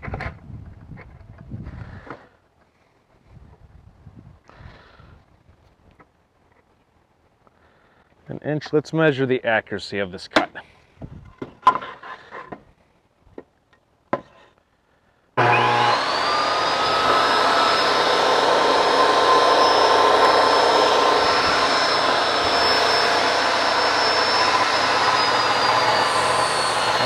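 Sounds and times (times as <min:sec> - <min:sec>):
table saw motor whining: 0:15.4 - 0:27.0.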